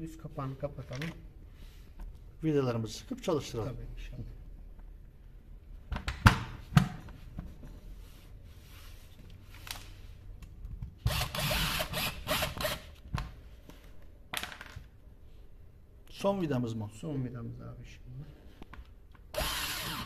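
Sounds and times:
power screwdriver driving screw: 11.1s - 12.9s, 19.3s - 20.0s.

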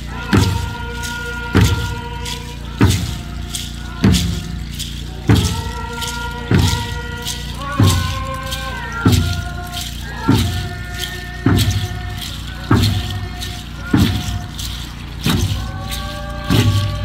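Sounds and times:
group singing a chant: 0.0s - 17.0s
slow drum beat: 0.0s - 17.0s.

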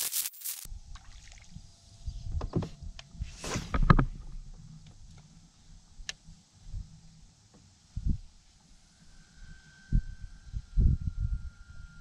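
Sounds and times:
fishing rod swish: 3.3s - 3.9s.

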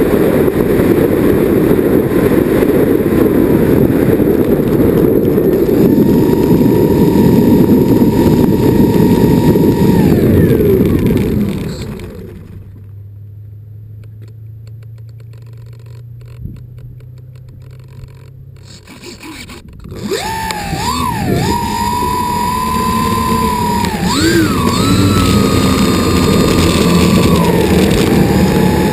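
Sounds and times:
model plane engine whine: 0.0s - 12.7s, 18.8s - 28.9s
wheels rolling on pavement: 0.0s - 13.3s, 19.6s - 28.9s
low steady hum: 0.0s - 28.9s.

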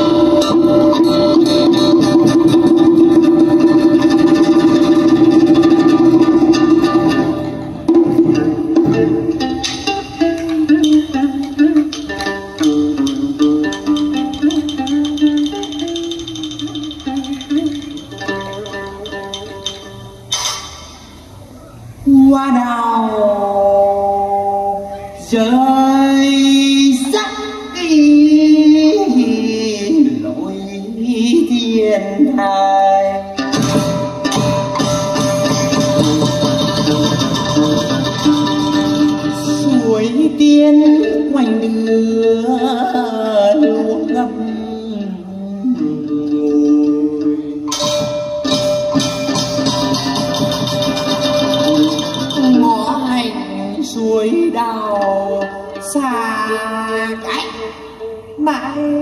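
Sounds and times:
plucked string folk music: 0.0s - 22.1s, 23.3s - 59.0s
woman singing folk melody: 22.0s - 33.6s, 37.6s - 47.7s, 51.5s - 59.0s.

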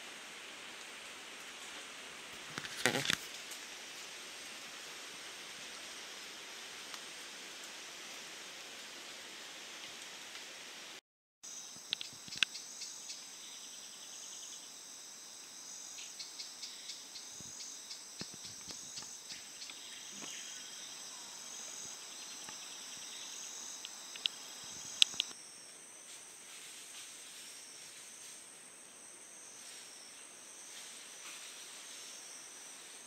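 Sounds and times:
insect chorus: 2.3s - 7.3s, 11.4s - 33.0s
sharp clicks: 23.8s - 25.4s.

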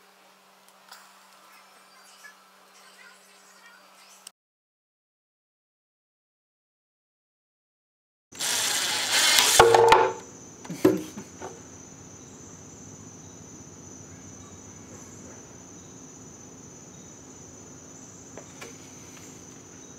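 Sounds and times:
faint high-pitched whine: 8.4s - 19.9s
impact driver hammering: 9.1s - 10.2s.

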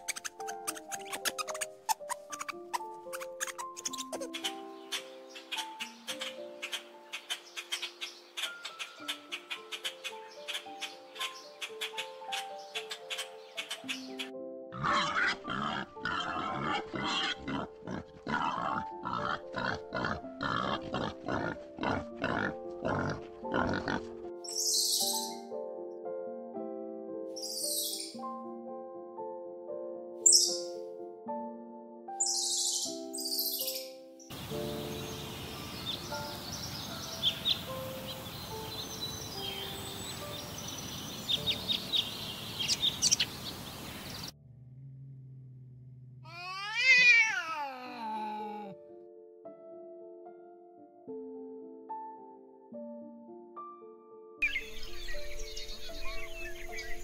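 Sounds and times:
birds calling: 0.0s - 25.4s, 30.2s - 30.8s, 33.7s - 44.3s, 54.4s - 57.0s
background music with held notes: 0.0s - 43.4s, 46.3s - 57.0s
boars grunting: 14.7s - 24.2s.

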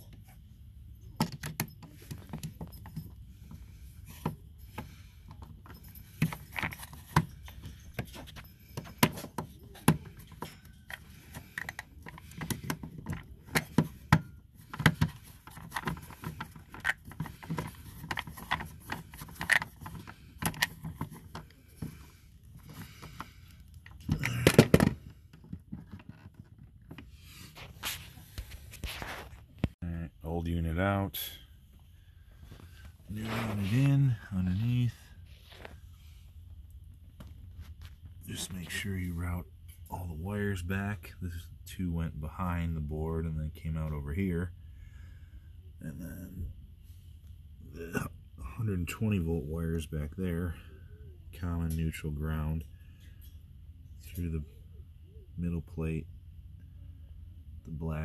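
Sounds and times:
wiring and parts rattling: 0.0s - 31.3s, 32.4s - 41.0s.

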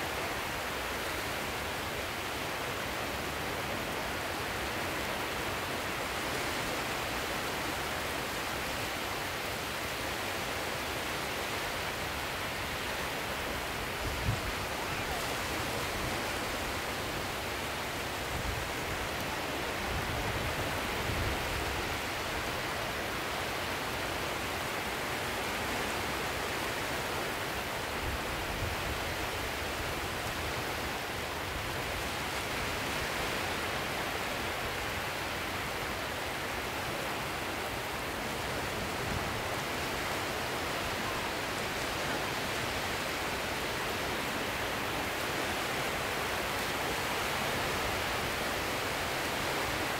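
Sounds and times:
sea surf washing: 0.0s - 49.9s.

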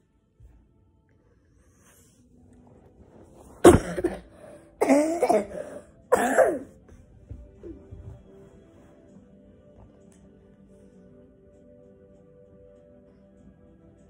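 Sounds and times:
child coughing: 3.6s - 6.8s.

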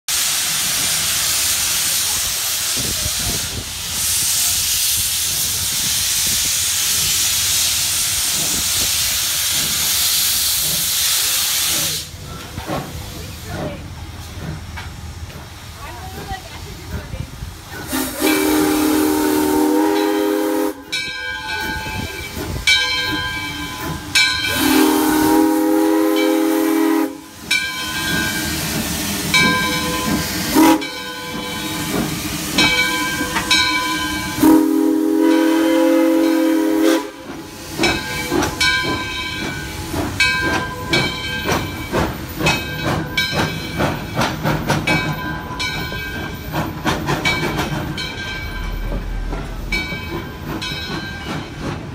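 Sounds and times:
steam hissing: 0.1s - 51.9s
train wheels clicking over rail joints: 0.2s - 51.9s
steam whistle blasts: 17.8s - 21.1s, 23.8s - 27.5s, 29.8s - 31.9s, 32.7s - 37.4s.

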